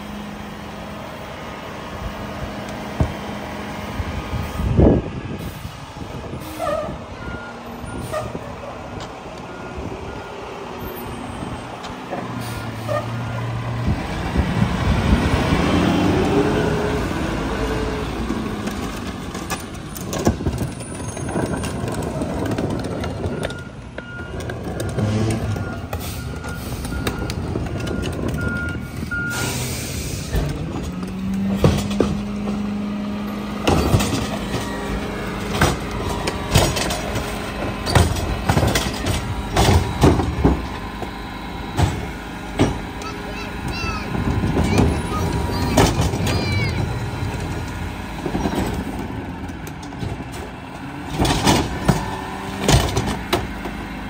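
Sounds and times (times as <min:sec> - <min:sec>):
garbage truck engine running: 0:00.0 - 0:54.0
reversing alarm beeping: 0:07.1 - 0:11.6, 0:23.2 - 0:24.5, 0:25.4 - 0:30.1
carts knocking and clanking: 0:18.2 - 0:28.8, 0:30.3 - 0:53.9.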